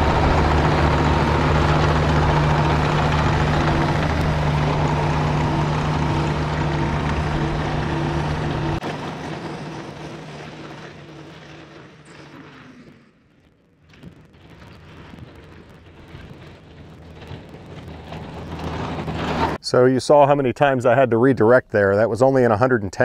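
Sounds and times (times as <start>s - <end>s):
excavator diesel engine at full throttle: 0.0s - 12.0s, 17.0s - 19.6s.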